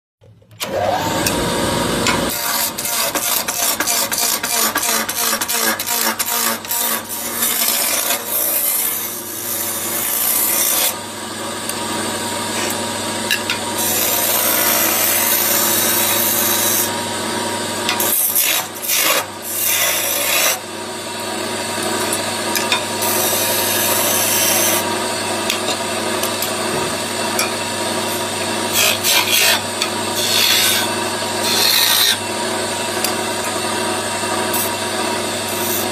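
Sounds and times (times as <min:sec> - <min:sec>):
lathe motor humming: 0:00.6 - 0:03.9
chisel scraping wood: 0:02.0 - 0:08.9, 0:12.5 - 0:12.8, 0:17.9 - 0:20.6, 0:28.1 - 0:32.2.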